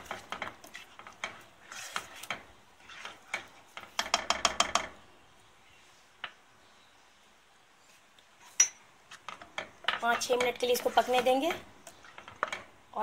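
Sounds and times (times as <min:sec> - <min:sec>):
spoon tapping and scraping pan: 0:00.0 - 0:05.0, 0:08.5 - 0:12.8.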